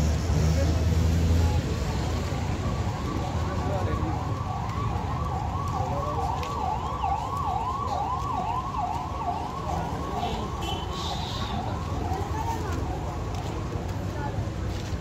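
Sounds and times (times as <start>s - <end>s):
street crowd hum: 0.0s - 15.0s
traffic: 0.0s - 15.0s
ambulance siren yelping: 2.0s - 13.4s.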